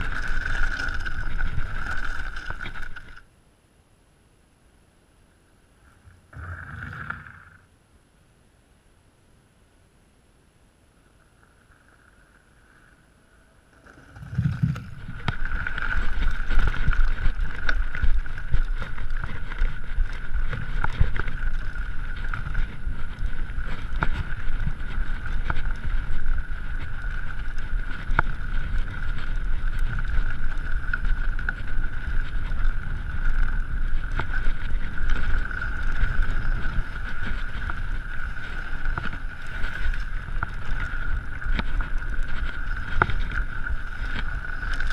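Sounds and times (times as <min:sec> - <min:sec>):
bike clicks and rattles: 0:00.0 - 0:03.3, 0:13.8 - 0:44.9
bike tyre rumble on gravel: 0:00.0 - 0:03.3, 0:05.8 - 0:07.7, 0:11.0 - 0:44.9.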